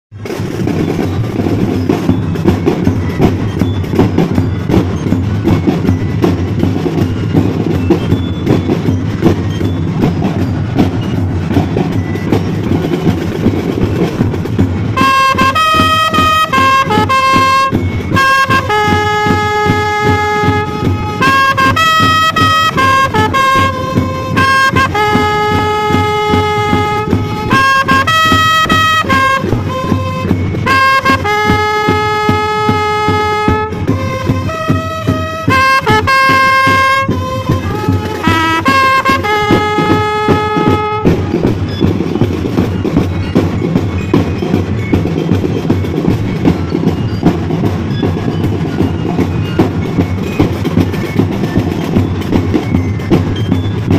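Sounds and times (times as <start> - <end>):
drum cadence with bass drum: 0.1 - 53.9
bugles playing a melody: 10.9 - 41.7.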